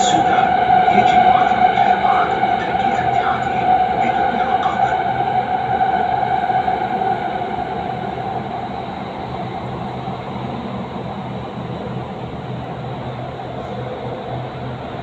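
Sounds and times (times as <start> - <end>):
high train whine: 0.0 - 15.0
metro train rumble: 0.0 - 15.0.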